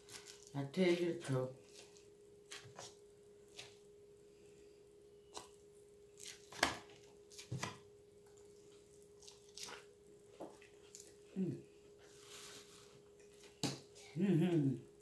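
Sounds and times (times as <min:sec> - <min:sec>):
faint steady hum: 0:00.0 - 0:15.0
crunchy chewing: 0:08.2 - 0:09.9.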